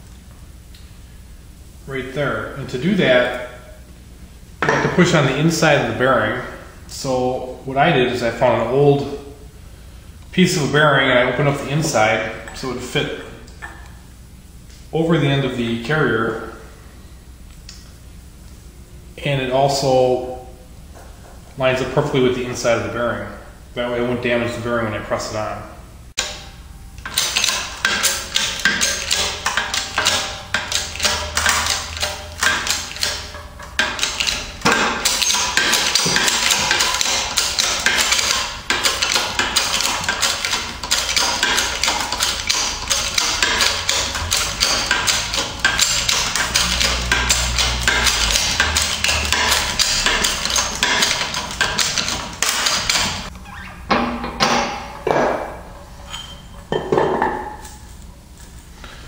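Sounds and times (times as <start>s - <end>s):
shop press metallic clicks: 26.2s - 53.3s.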